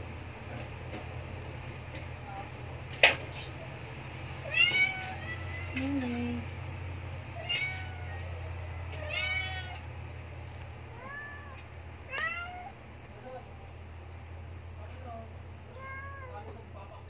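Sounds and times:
steady low hum: 0:00.0 - 0:17.0
kittens mewing: 0:04.4 - 0:06.5, 0:07.3 - 0:10.0, 0:10.8 - 0:12.8, 0:15.6 - 0:16.6.

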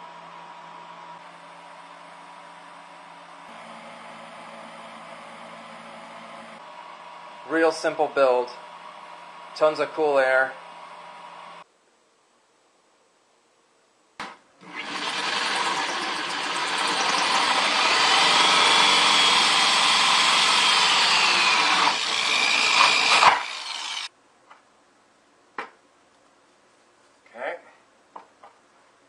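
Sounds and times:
power drill with hole saw cutting plastic: 0:03.5 - 0:09.6, 0:14.6 - 0:24.1.

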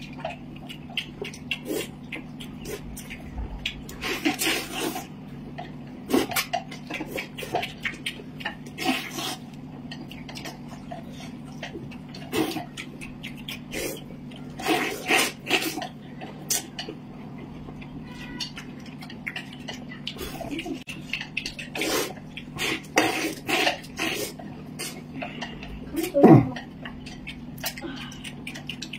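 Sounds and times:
noodles being slurped: 0:01.4 - 0:02.0, 0:03.8 - 0:05.2, 0:08.7 - 0:09.6, 0:13.6 - 0:16.7, 0:21.5 - 0:26.2
low hum: 0:02.0 - 0:04.4.

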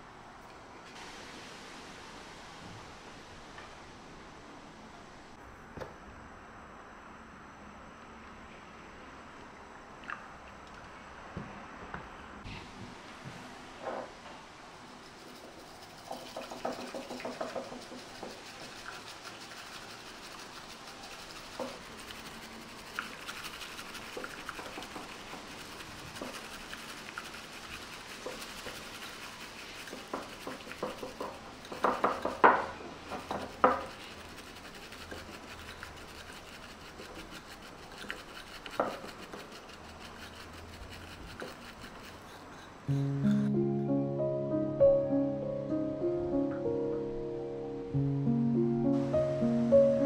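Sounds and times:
whisk swishing in ceramic cup: 0:14.9 - 0:43.4
whisk knocking on cup: 0:16.0 - 0:42.2.

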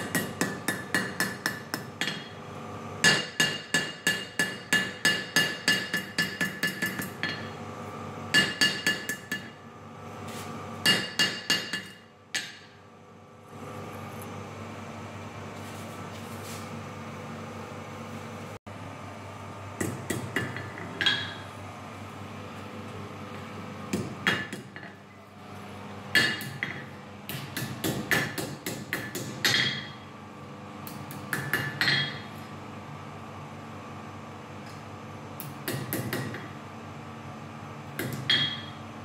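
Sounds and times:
hammer striking hot steel on anvil: 0:00.0 - 0:02.4, 0:03.0 - 0:07.6, 0:08.3 - 0:09.6, 0:10.8 - 0:12.8, 0:19.8 - 0:21.5, 0:23.9 - 0:25.0, 0:26.1 - 0:30.0, 0:30.9 - 0:32.3, 0:35.4 - 0:36.5, 0:38.0 - 0:38.8
steady low hum: 0:00.0 - 0:39.0.

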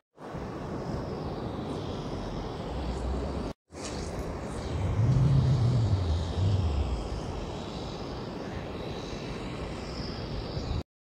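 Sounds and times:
wind buffeting microphone: 0:04.1 - 0:10.8
distant surf: 0:04.3 - 0:09.8
wind rushing: 0:04.4 - 0:08.3.

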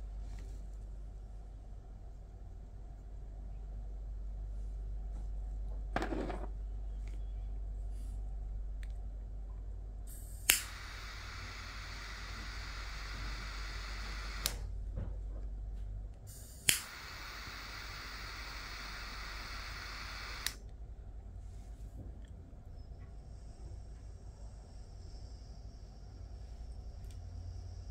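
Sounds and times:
jet torch hissing: 0:10.1 - 0:14.7, 0:16.3 - 0:20.6
torch lighter ignition click: 0:10.1 - 0:14.7, 0:16.3 - 0:20.7.

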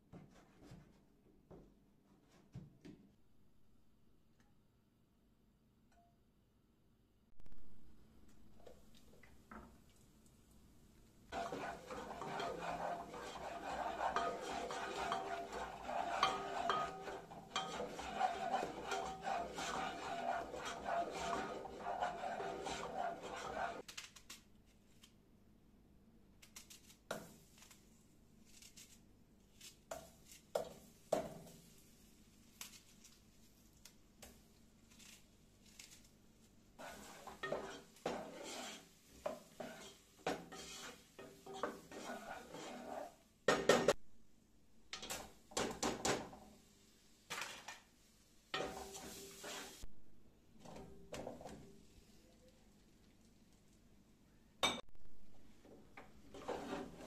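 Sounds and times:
wooden spoon scraping in pot: 0:11.3 - 0:23.9, 0:36.8 - 0:43.9, 0:48.5 - 0:49.9, 0:50.6 - 0:51.7, 0:55.6 - 0:57.0
cookware knocks and clinks: 0:54.6 - 0:54.9.

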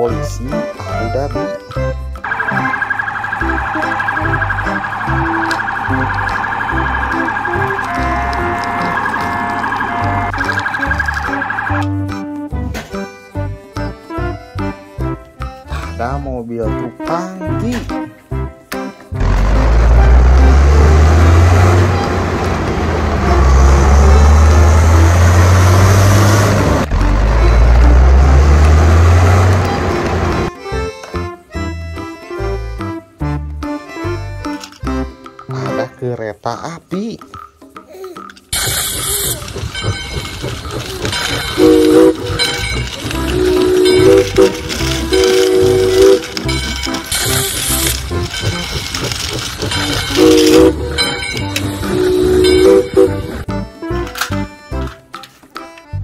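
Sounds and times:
backing track with pulsing bass: 0:00.0 - 0:15.9
road noise: 0:01.1 - 0:12.4, 0:19.1 - 0:31.6, 0:38.5 - 0:56.0
truck engine humming: 0:01.7 - 0:12.7, 0:19.1 - 0:35.4, 0:38.5 - 0:56.0
police siren warbling: 0:02.2 - 0:12.0, 0:43.2 - 0:46.4, 0:50.0 - 0:53.4.

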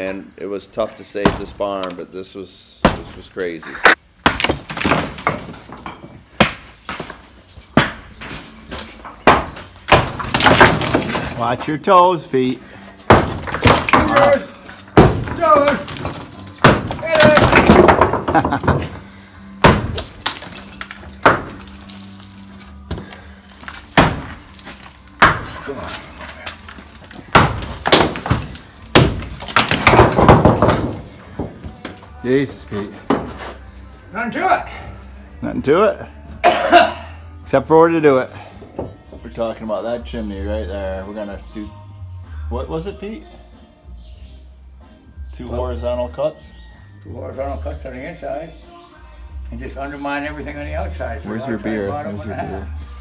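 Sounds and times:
sledgehammer striking stone: 0:01.2 - 0:01.6, 0:02.8 - 0:03.2, 0:04.2 - 0:07.1, 0:07.7 - 0:11.4, 0:13.0 - 0:19.0, 0:19.6 - 0:22.0, 0:23.6 - 0:26.1, 0:27.2 - 0:31.5, 0:33.1 - 0:33.4
stone and rubble crashing down: 0:04.4 - 0:06.2, 0:09.3 - 0:11.6, 0:13.1 - 0:19.0, 0:19.6 - 0:22.5, 0:23.5 - 0:31.5
heavy knocks on stone: 0:13.1 - 0:14.4, 0:15.0 - 0:19.0, 0:27.3 - 0:31.7.

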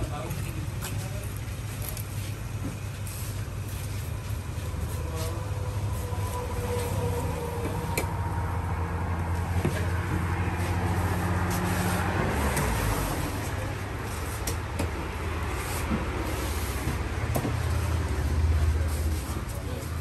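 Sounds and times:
engine rumbling: 0:00.0 - 0:20.0.

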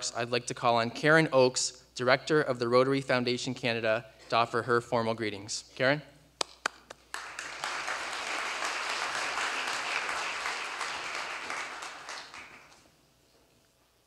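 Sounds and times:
audience applauding: 0:06.6 - 0:12.9.

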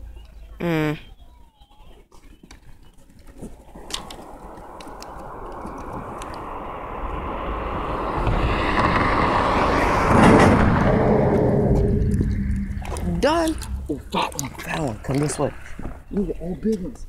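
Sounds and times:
vehicle passing close by: 0:03.4 - 0:16.1
faint clicks: 0:03.8 - 0:06.5.

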